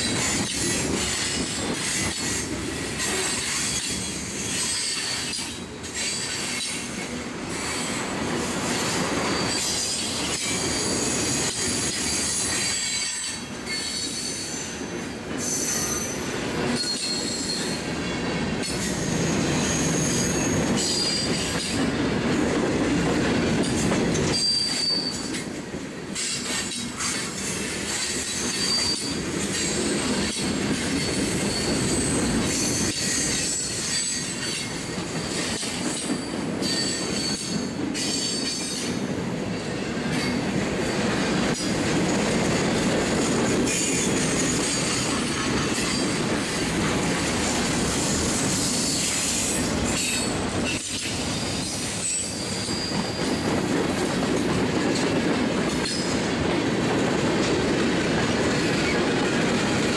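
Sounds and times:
steel wheels rumbling on rail: 0:00.0 - 0:59.9
high wheel squeal: 0:08.8 - 0:14.8, 0:15.4 - 0:17.9, 0:18.7 - 0:21.4, 0:24.3 - 0:25.4, 0:28.0 - 0:29.7, 0:47.5 - 0:53.5.

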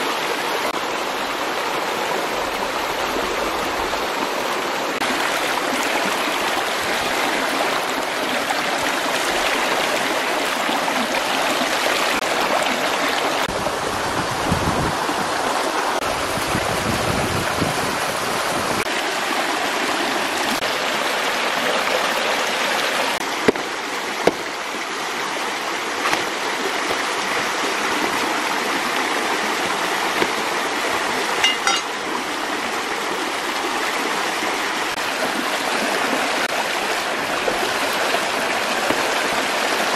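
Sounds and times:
stream rushing over rocks: 0:00.0 - 0:39.9
sharp knocks: 0:23.4 - 0:24.5, 0:26.0 - 0:27.1.

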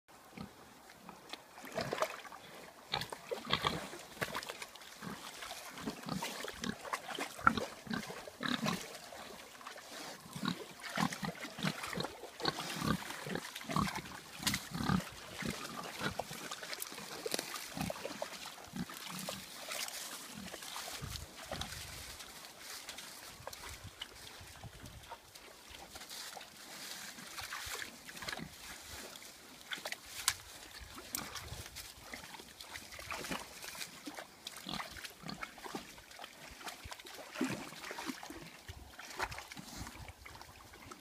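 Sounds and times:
water splashing and sloshing: 0:00.2 - 0:41.0
pigs grunting: 0:05.0 - 0:09.2, 0:09.9 - 0:19.6.

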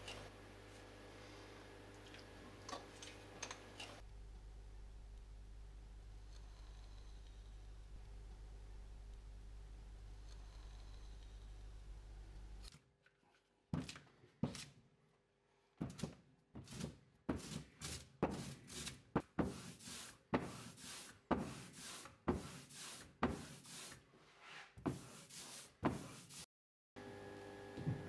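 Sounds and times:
ink roller rolling over ink: 0:19.4 - 0:26.4.

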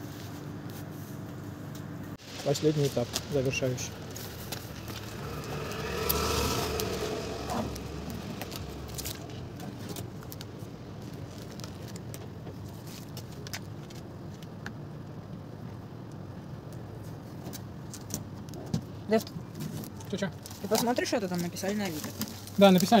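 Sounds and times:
low rumble: 0:02.2 - 0:11.6
tape clicks and rustles: 0:08.4 - 0:14.8.

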